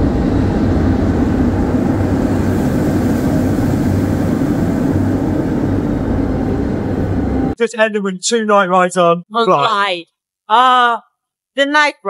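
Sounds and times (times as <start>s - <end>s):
low rumble: 0.0s - 7.6s
wind on microphone: 0.0s - 7.6s.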